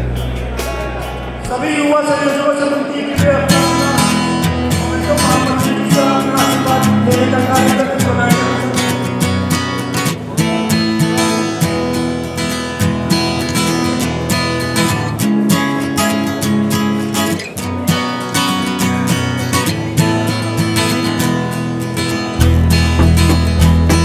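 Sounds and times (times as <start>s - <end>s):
bass line: 0.0s - 2.1s, 22.3s - 24.0s
strummed guitar music with beat: 0.0s - 24.0s.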